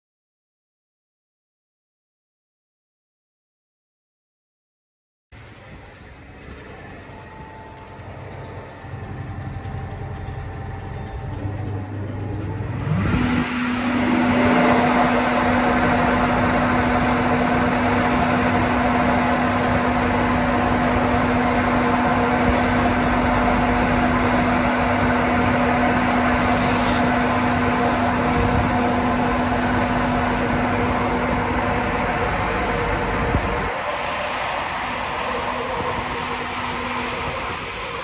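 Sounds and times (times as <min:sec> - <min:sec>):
held electric tone: 0:05.4 - 0:38.0
locomotive equipment humming: 0:05.4 - 0:38.0
brief high hiss: 0:26.1 - 0:27.3.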